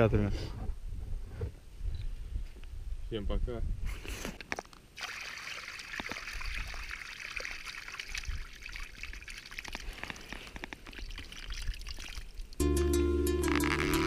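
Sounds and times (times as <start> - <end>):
small splashes: 5.0 - 12.6
water pouring from bucket: 5.0 - 12.6.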